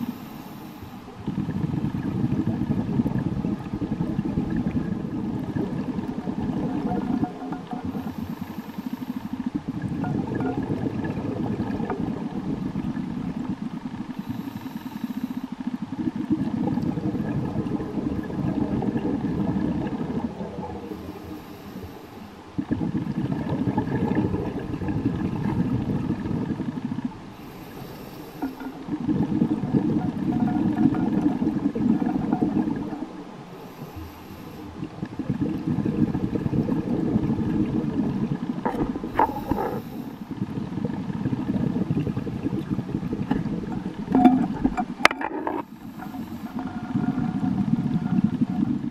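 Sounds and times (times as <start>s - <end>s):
regulator inhale hiss: 0.0s - 1.3s, 7.8s - 9.6s, 13.3s - 15.8s, 20.8s - 22.6s, 27.2s - 28.9s, 33.4s - 35.0s, 39.1s - 40.4s, 45.6s - 46.9s
exhaled bubbles rushing: 1.1s - 48.9s.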